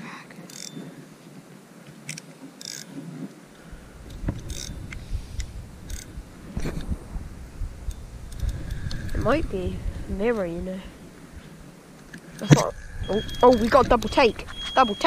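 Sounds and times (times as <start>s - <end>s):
fishing reel drag ratcheting: 0.5s - 0.8s, 2.6s - 2.9s, 4.0s - 6.2s, 7.8s - 9.3s
low rumble on microphone: 3.6s - 11.9s, 12.5s - 14.8s.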